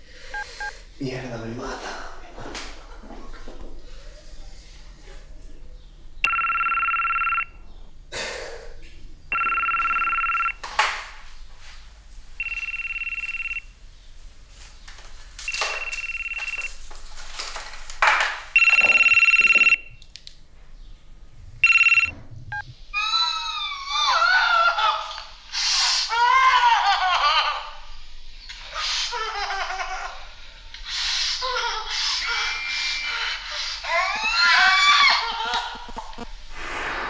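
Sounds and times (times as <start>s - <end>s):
mobile phone ringing: 6.3s - 7.6s, 9.3s - 10.6s, 12.4s - 13.7s, 15.5s - 16.8s, 18.6s - 20.0s, 21.6s - 22.6s.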